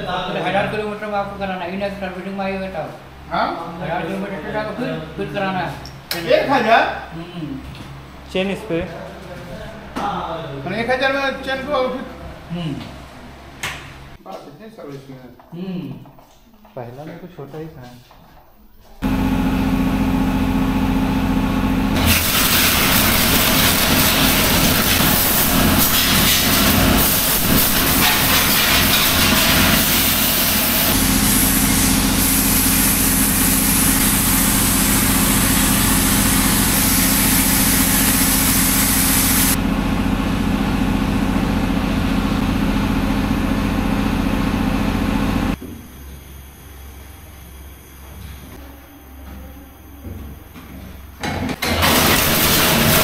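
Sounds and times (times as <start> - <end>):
pressure washer motor hum: 19.0 - 45.6, 51.5 - 53.0
hiss of water spray: 22.0 - 39.6.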